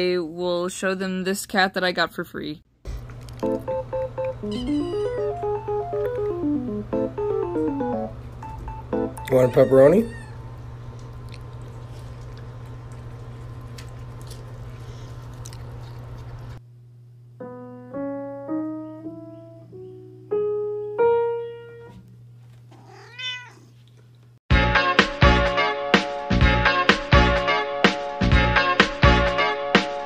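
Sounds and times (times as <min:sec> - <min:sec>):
piano notes: 0:03.4 - 0:10.1, 0:17.4 - 0:22.0
cat meowing: 0:04.5 - 0:05.1, 0:09.2 - 0:10.4, 0:22.7 - 0:23.8.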